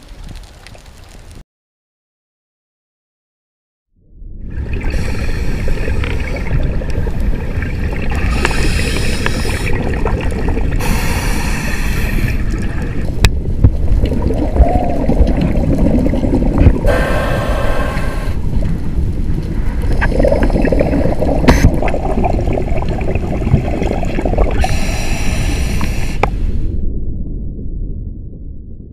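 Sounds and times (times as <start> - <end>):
low underwater rumble: 4.0 - 28.9
diver's regulator bubbling: 4.5 - 26.6.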